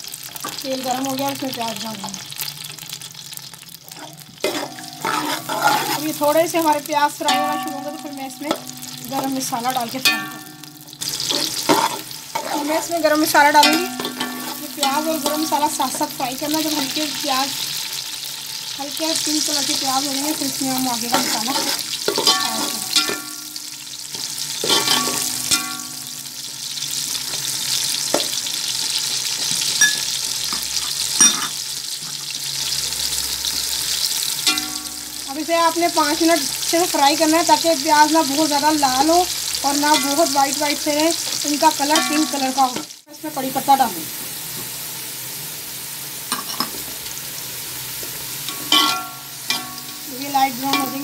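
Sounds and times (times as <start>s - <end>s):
onions sizzling in hot oil: 0.0s - 51.0s
metallic scrape with ring: 3.9s - 6.2s, 13.7s - 14.7s, 21.1s - 23.4s
metal spoon stirring: 3.9s - 6.6s, 7.3s - 16.0s, 20.4s - 26.0s, 48.5s - 51.0s.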